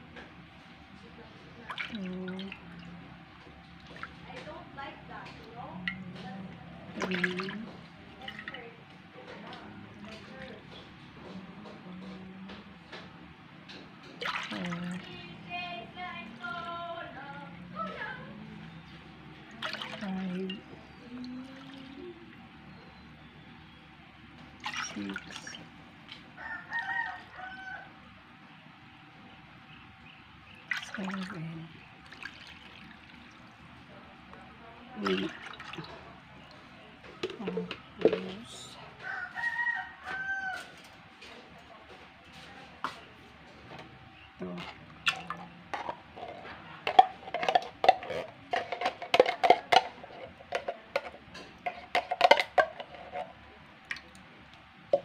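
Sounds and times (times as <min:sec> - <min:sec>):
rooster crowing: 0:26.4 - 0:28.0, 0:39.0 - 0:41.0.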